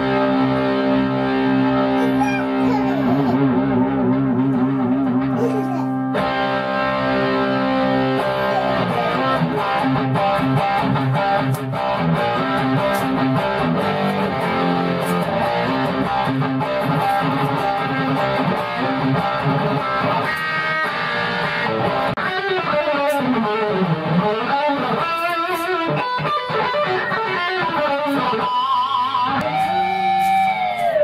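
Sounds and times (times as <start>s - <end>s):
electric guitar through amplifier: 0.0s - 31.0s.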